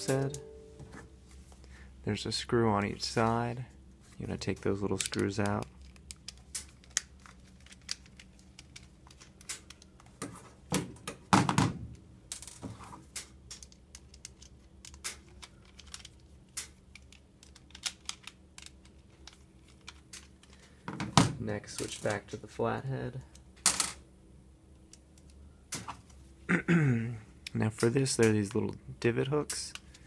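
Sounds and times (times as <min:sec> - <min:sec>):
knocks and handling sounds: 0:00.0 - 0:01.6, 0:04.0 - 0:22.4.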